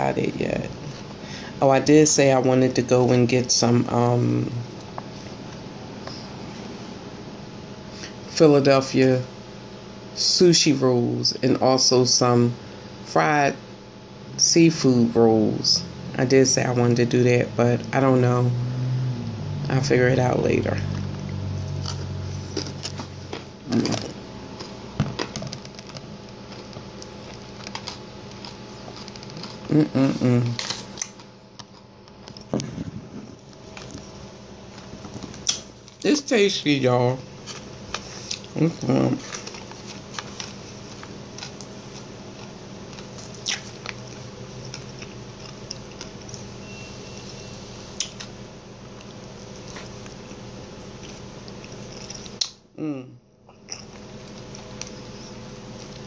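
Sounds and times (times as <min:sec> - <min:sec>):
low steady hum: 0:00.0 - 0:56.0
chewing crunchy salad: 0:20.8 - 0:36.0, 0:37.3 - 0:46.6, 0:47.9 - 0:52.6, 0:53.5 - 0:56.0.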